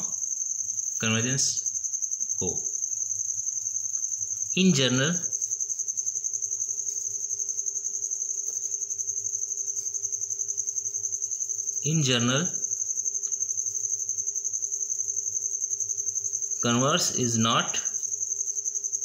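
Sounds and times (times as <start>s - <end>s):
cricket chirping: 0.0s - 19.0s
man speaking: 1.0s - 1.6s, 2.4s - 2.7s, 4.6s - 5.3s, 11.8s - 12.6s, 16.6s - 18.0s.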